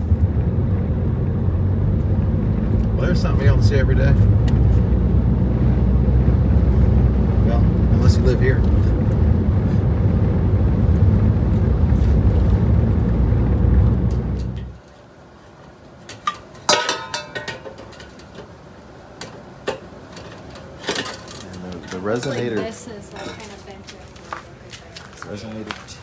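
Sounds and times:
vehicle rumbling inside cab: 0.0 - 14.8
metal exhaust parts clanking: 16.0 - 18.6, 19.2 - 23.5.

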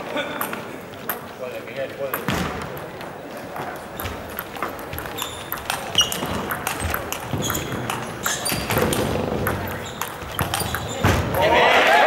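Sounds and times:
table tennis ball clicking: 2.1 - 11.1
shoes squeaking on floor: 3.9 - 11.6.

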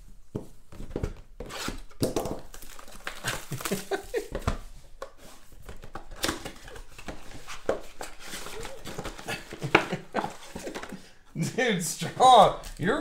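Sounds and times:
cardboard rustling and tearing: 0.8 - 10.9
plastic wrap crinkling: 1.8 - 4.4, 5.6 - 10.9.

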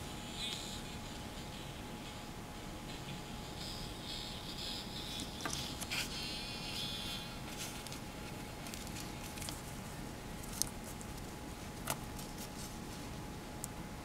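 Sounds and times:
background hiss: 0.0 - 13.7
paper rustling: 7.5 - 9.8, 10.4 - 13.2.

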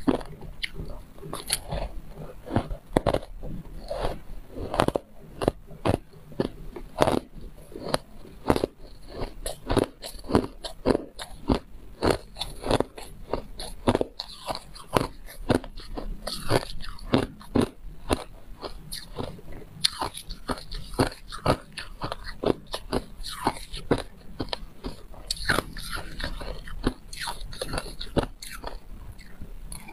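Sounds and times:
ice crunching while chewed: 0.0 - 29.9.

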